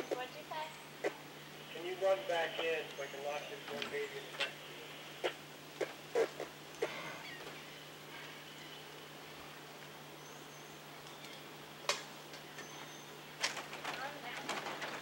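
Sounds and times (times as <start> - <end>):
faint high chirp: 12.6 - 13.2.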